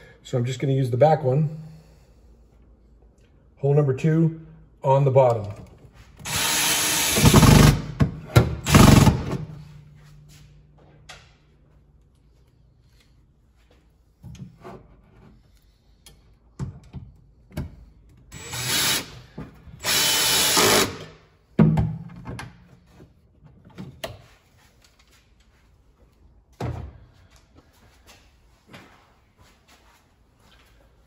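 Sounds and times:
cordless drill driving screws: 0:06.2 - 0:07.9, 0:18.3 - 0:19.2, 0:19.8 - 0:21.1.

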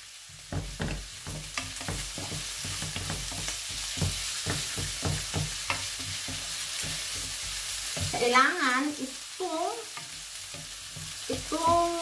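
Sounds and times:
vegetables sizzling in oil: 0:00.0 - 0:12.0
wooden spatula scraping pan: 0:00.6 - 0:08.5.

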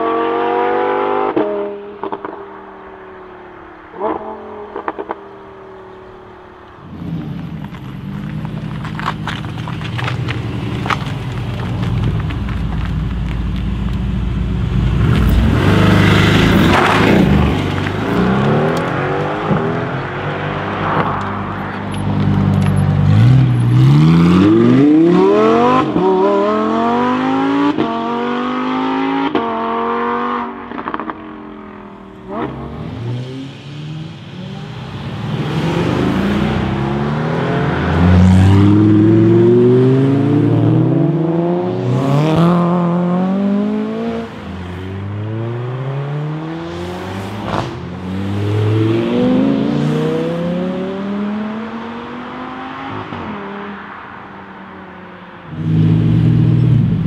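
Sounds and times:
cars accelerating with gear changes: 0:00.0 - 0:57.0
sports car accelerating through gears: 0:22.6 - 0:53.8.

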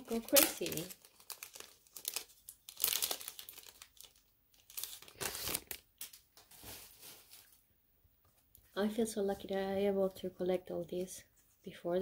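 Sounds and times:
plastic wrapping crinkling: 0:00.0 - 0:07.7.

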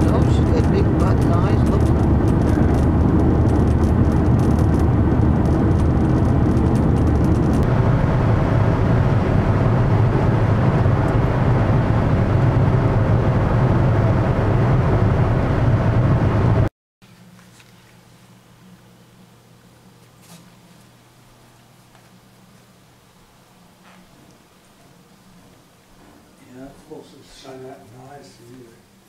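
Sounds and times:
car engine and road noise: 0:00.0 - 0:16.7.

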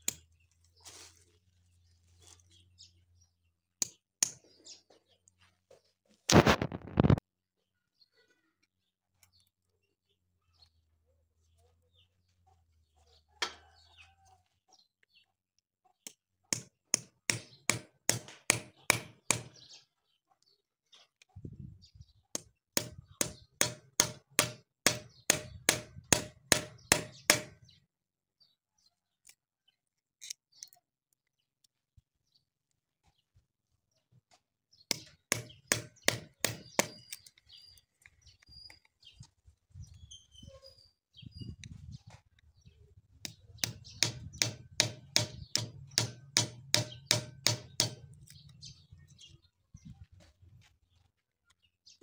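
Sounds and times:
hatchet knocking knife into wood: 0:16.5 - 0:19.6, 0:22.4 - 0:27.6, 0:34.9 - 0:37.2, 0:43.3 - 0:48.2.

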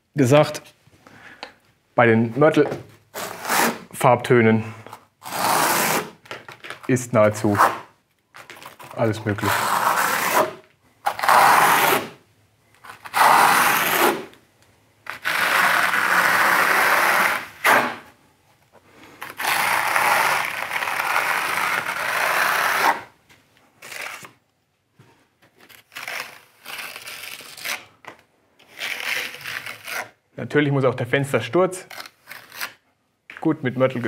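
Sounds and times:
trowel scraping mortar on wall: 0:03.2 - 0:03.9, 0:05.2 - 0:06.2, 0:08.8 - 0:12.2, 0:12.9 - 0:14.4.

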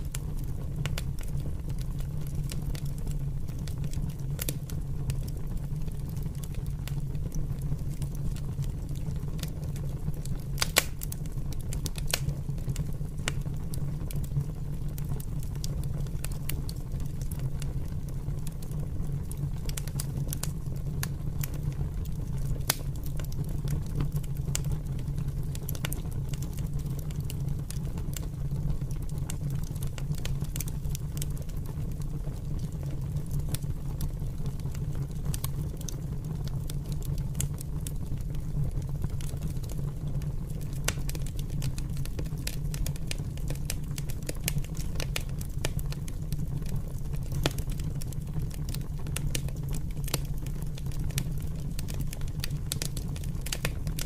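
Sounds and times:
fire crackling and popping: 0:00.0 - 0:54.0.

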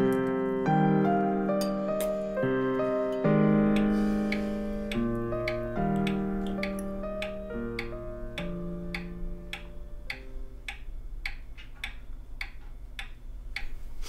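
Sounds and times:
held music notes: 0:00.0 - 0:14.0
pendulum wall clock ticking: 0:03.1 - 0:14.0.

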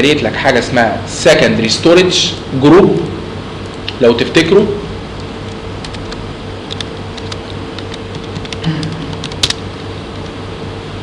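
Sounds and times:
steady electrical hum: 0:00.0 - 0:11.0
computer keyboard typing: 0:05.5 - 0:09.6
sharp click: 0:05.9 - 0:09.6.

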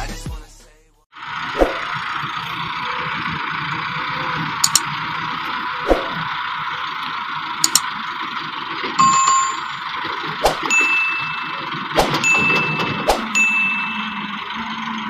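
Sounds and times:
tractor diesel engine running: 0:01.0 - 0:15.0
short clicks: 0:04.6 - 0:04.9, 0:07.6 - 0:07.9
short chime: 0:09.0 - 0:09.8, 0:10.7 - 0:14.5.

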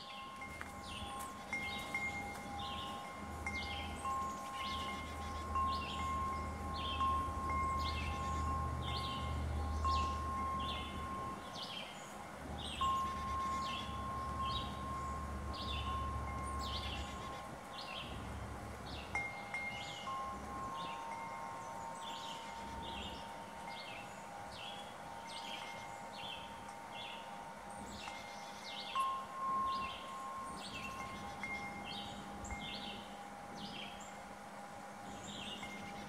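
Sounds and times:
wind chimes ringing: 0:00.0 - 0:36.0.

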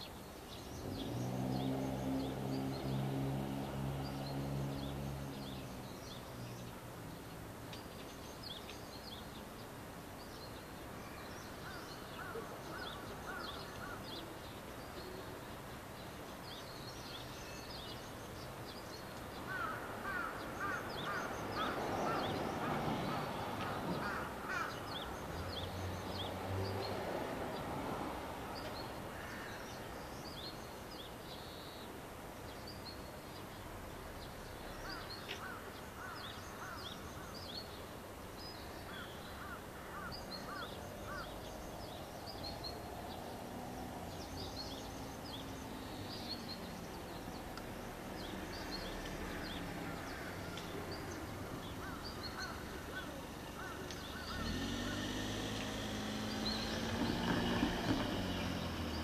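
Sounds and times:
small birds chirping: 0:00.0 - 0:59.0
crow cawing: 0:19.5 - 0:22.2, 0:23.6 - 0:24.8, 0:51.8 - 0:55.0.

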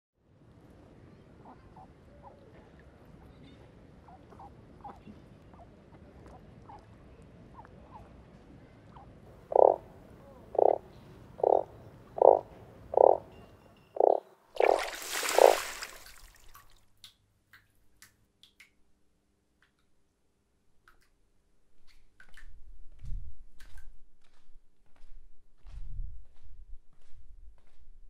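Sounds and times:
frog croaking loudly: 0:09.5 - 0:09.9, 0:10.5 - 0:13.2, 0:14.0 - 0:15.7.

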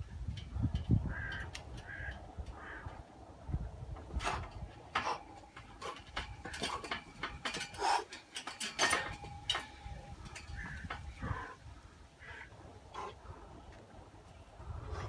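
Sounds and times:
metal bar clinking and knocking: 0:04.2 - 0:11.1.

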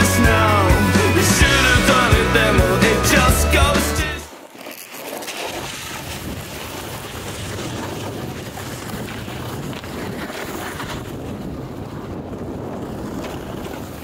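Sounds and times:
snowboard scraping over snow: 0:00.0 - 0:14.0
wind rushing over microphone: 0:05.6 - 0:14.0.

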